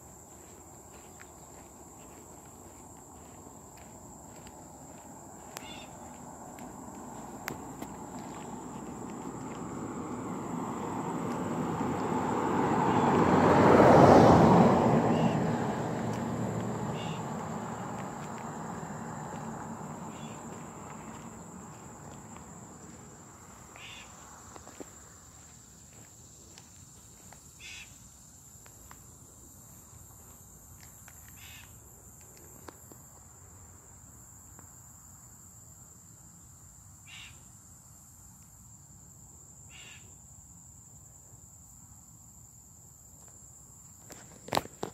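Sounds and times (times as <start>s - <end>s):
cicadas droning: 0.0s - 44.9s
vehicle passing: 0.1s - 28.3s.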